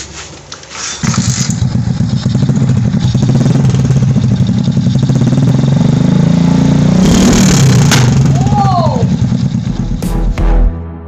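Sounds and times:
motorcycle engine running: 1.0 - 10.7.

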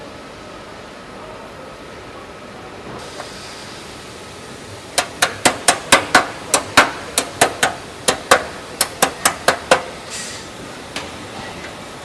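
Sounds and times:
hammer tapping on metal: 5.0 - 10.0.

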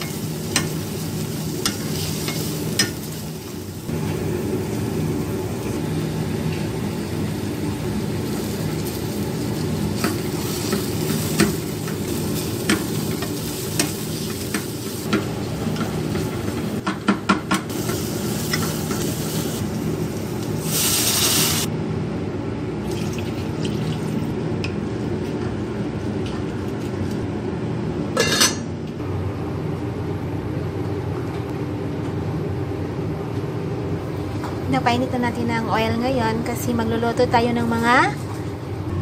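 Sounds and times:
onions sizzling in a pot: 0.0 - 21.7.

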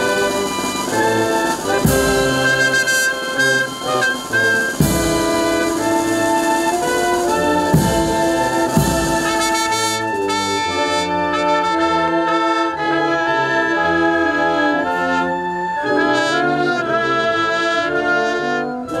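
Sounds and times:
drum and cymbal strokes: 0.0 - 10.3
brass band playing chords: 0.0 - 19.0.

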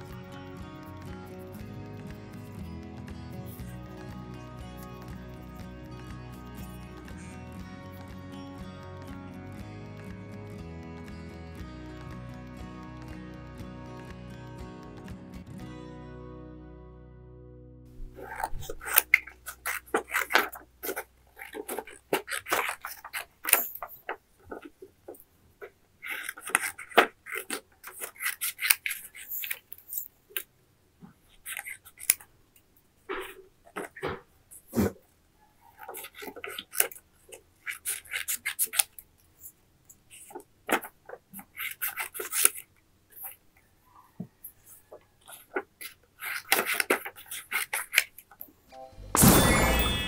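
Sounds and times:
scissors snipping: 18.0 - 24.7, 26.1 - 30.5, 37.6 - 43.4, 45.3 - 48.5
paper rustling and scraping: 18.0 - 30.1, 35.8 - 39.5, 40.1 - 43.4, 44.9 - 48.4.

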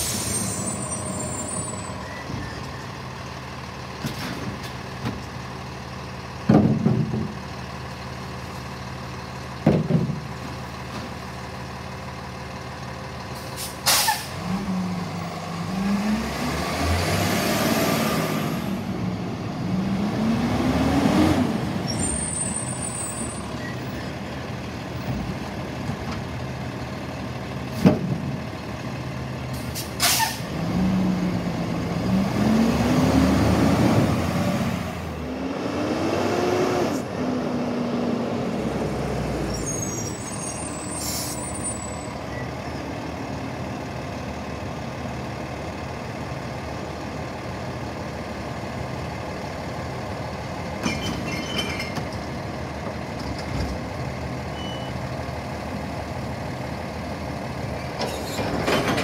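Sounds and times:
air brake hisses: 0.0 - 1.1, 13.4 - 14.3, 29.6 - 30.4, 39.8 - 41.7
truck diesel engine idling: 0.4 - 13.6, 22.0 - 27.8, 39.9 - 50.8, 53.8 - 58.0
engine revving: 14.4 - 21.9, 30.5 - 39.4.

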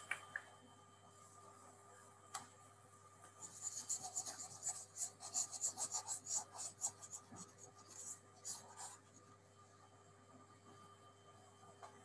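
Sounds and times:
stylus scratching on tablet screen: 3.4 - 9.3.

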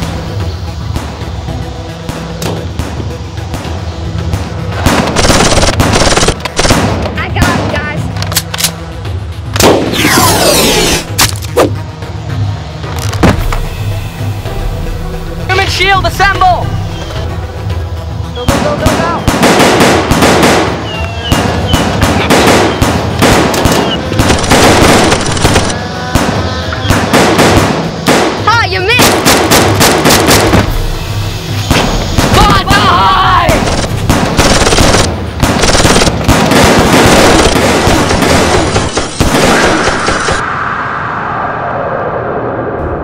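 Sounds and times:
background music: 0.0 - 40.6
rapid gunfire sound effects: 4.8 - 7.8, 18.5 - 30.7, 33.5 - 40.4.

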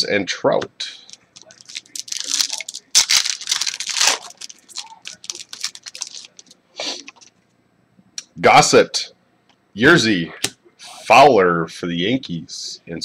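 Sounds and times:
foil wrapper tearing: 1.4 - 6.5.

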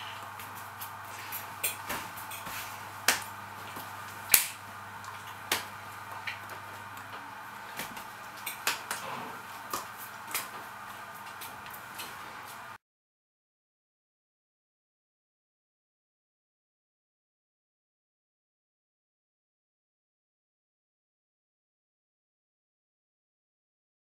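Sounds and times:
background hiss and hum: 0.0 - 12.8.

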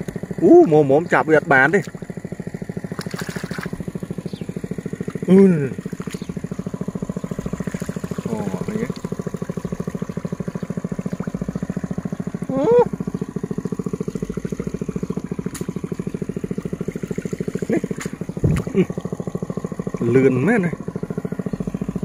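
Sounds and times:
small engine running: 0.0 - 22.0
short voice sounds: 12.5 - 12.9.

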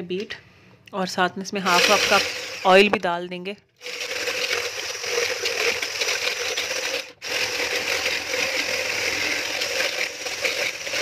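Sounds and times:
hand blender motor whirring: 1.6 - 2.9, 3.8 - 11.0
whisk rattling in plastic jug: 3.8 - 11.0.

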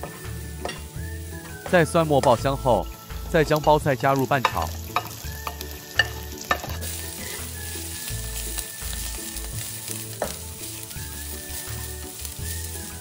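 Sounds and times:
cabbage sizzling in wok: 0.0 - 13.0
spatula clicking against pan: 4.4 - 6.8.

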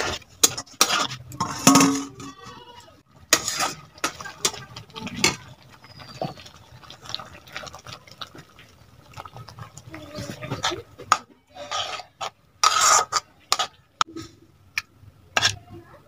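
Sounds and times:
metal spatula scraping pan: 0.0 - 6.4, 9.9 - 14.3, 15.4 - 15.6.

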